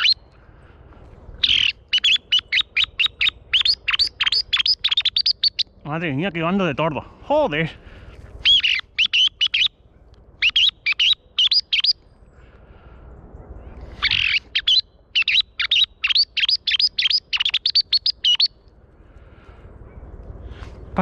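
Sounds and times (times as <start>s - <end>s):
thrush high chirps: 0.0s - 0.2s, 1.4s - 5.8s, 8.4s - 9.8s, 10.4s - 12.0s, 14.0s - 18.6s.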